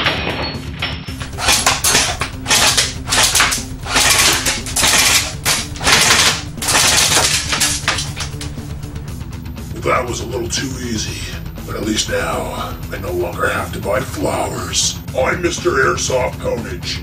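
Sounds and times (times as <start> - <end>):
airsoft rifle firing bursts: 1.2 - 9.1.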